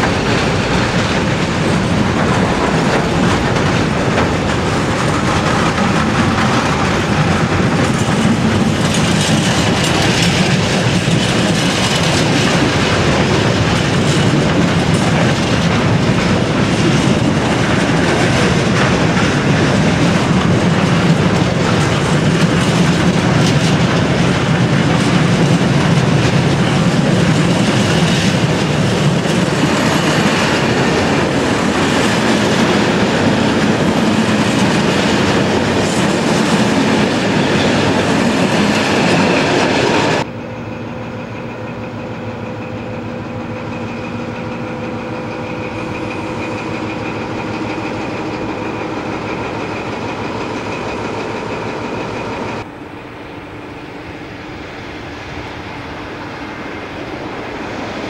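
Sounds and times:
wheels clicking over rail joints: 0.0 - 40.3
train rolling past: 0.0 - 58.0.

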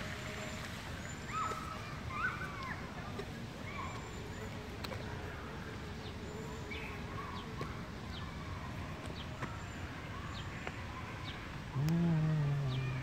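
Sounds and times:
outdoor background noise: 0.0 - 13.0
small birds chirping: 0.5 - 13.0
person's drawn-out syllable: 11.8 - 13.0.

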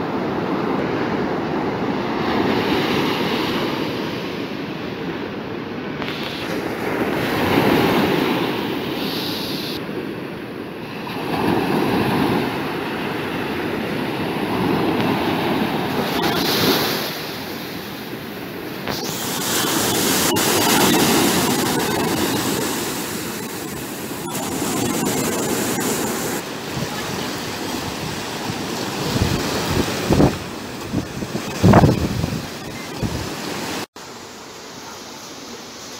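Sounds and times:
surf breaking on sand beach: 5.9 - 34.2.

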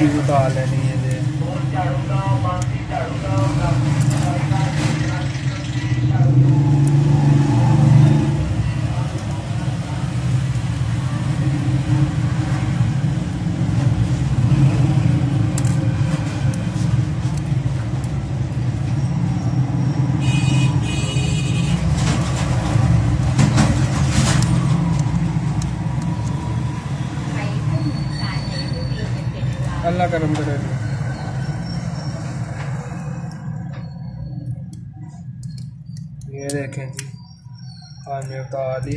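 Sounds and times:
low rumble of road traffic: 0.0 - 38.9.

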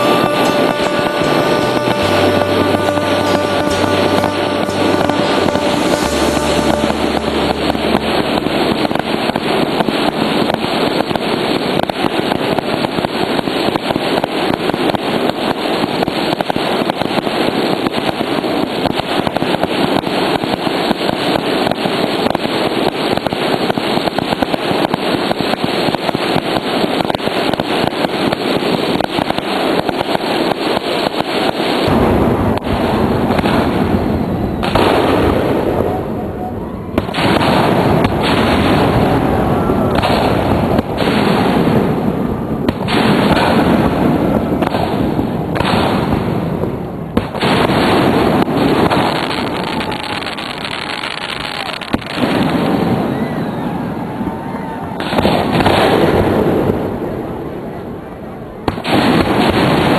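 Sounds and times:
fireworks bursting and crackling: 0.0 - 59.9.

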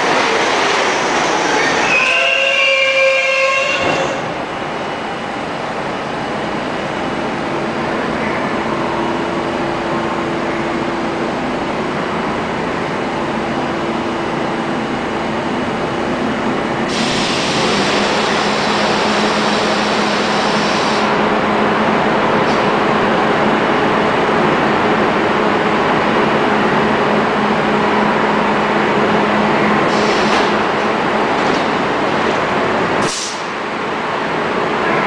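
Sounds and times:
subway train equipment hum: 0.0 - 35.0
loud air hiss: 16.9 - 21.2, 29.9 - 30.6, 33.0 - 33.6.

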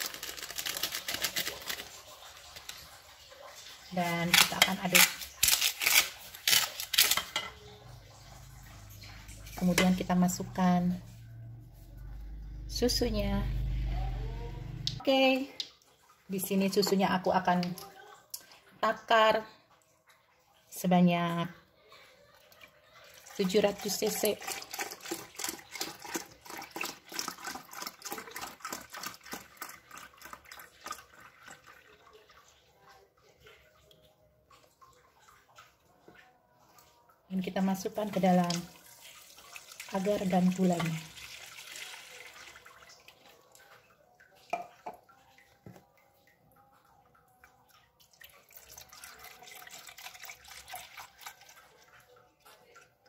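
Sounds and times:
milk pouring into plastic jug: 22.3 - 32.6, 38.4 - 53.0.

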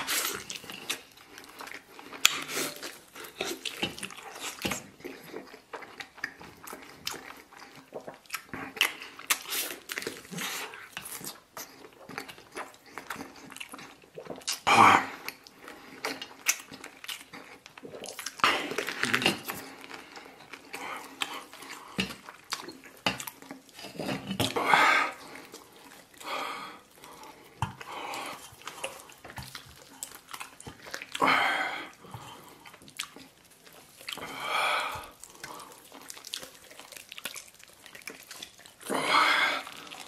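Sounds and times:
chewing and mouth sounds: 0.0 - 40.0.

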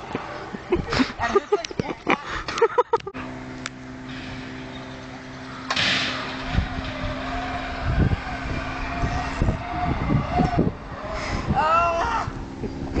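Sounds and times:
wind buffeting microphone: 0.0 - 2.6, 6.2 - 13.0
zip wire trolley whine: 4.1 - 13.0.

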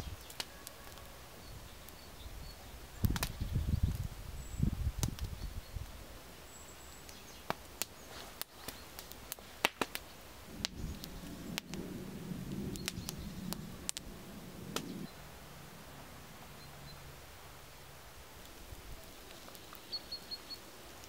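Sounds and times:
sharp pops from burning sticks: 0.0 - 1.1, 1.7 - 2.1, 3.0 - 4.1, 4.9 - 15.1, 18.4 - 21.0
campfire crackling: 0.0 - 21.0
low rustling: 9.4 - 19.6.

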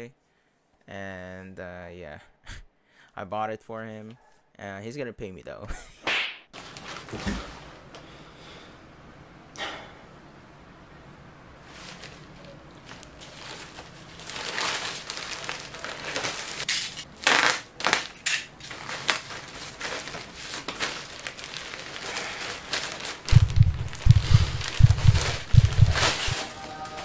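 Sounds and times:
plastic bag crinkling: 6.6 - 7.6, 11.6 - 26.5
deep muffled thumps: 23.3 - 26.4.

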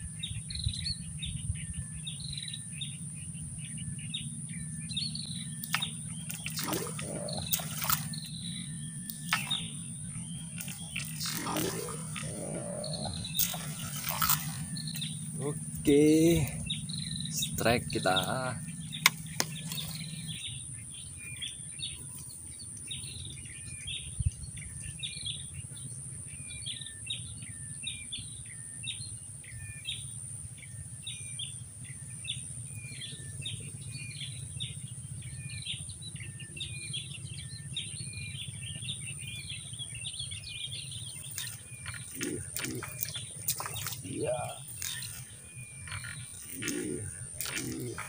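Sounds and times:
bird chirping: 0.0 - 48.0
high whine: 1.7 - 21.0
sharp clicks: 5.6 - 8.3, 9.0 - 9.7, 18.9 - 20.1.

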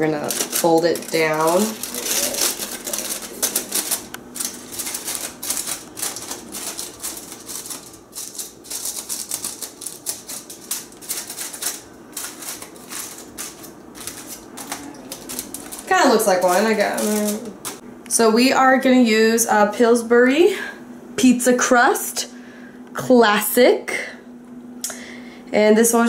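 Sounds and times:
aluminium foil crinkling: 0.0 - 17.8.

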